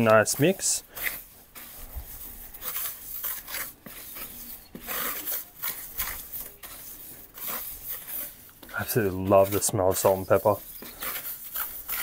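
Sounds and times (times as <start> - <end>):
hands mixing salt in foil tray: 0.0 - 12.0.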